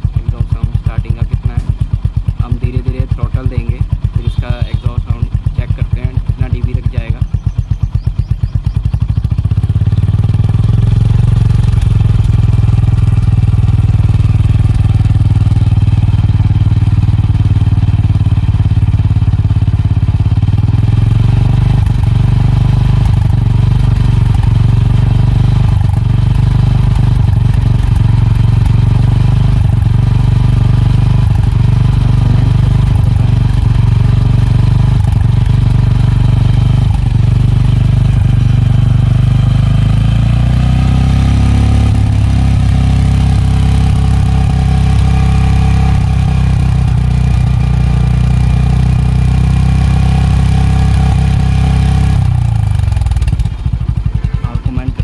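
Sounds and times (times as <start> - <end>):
motorcycle engine idling: 0.0 - 55.0.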